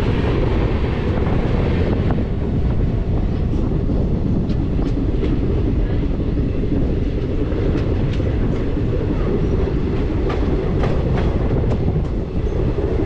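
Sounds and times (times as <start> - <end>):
train rumbling on track: 0.0 - 13.0
wheels clicking over rail joints: 3.1 - 13.0.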